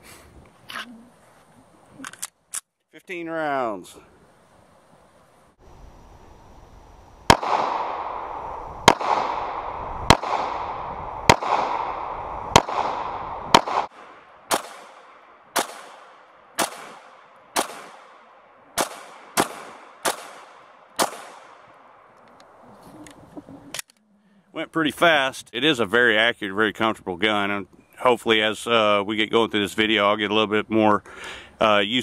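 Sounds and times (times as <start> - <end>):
pistol shots with echo: 7.3 - 21.7.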